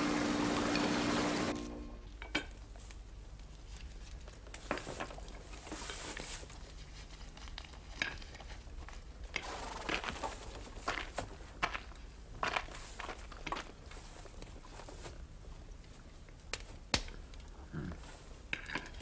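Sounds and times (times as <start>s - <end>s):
soft scrapes and rustles: 2.7s - 16.8s.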